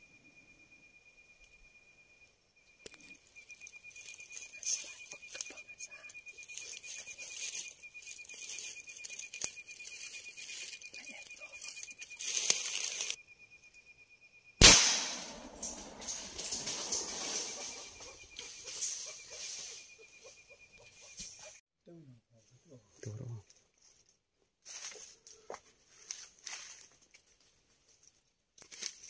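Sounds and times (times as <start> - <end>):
fast-pulsing insect trill: 0.1 - 21.6
leaves and brush rustling: 3.2 - 13.2, 15.0 - 20.2, 23.7 - 29.0
sharp loud bang: 14.6 - 17.8.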